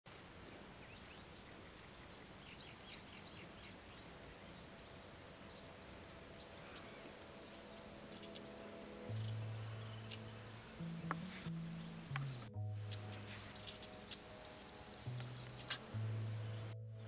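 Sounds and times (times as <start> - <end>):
small birds chirping: 0.1 - 17.0.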